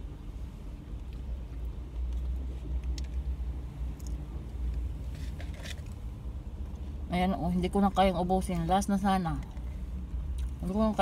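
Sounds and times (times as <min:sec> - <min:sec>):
low rumble in car cabin: 0:00.0 - 0:11.0.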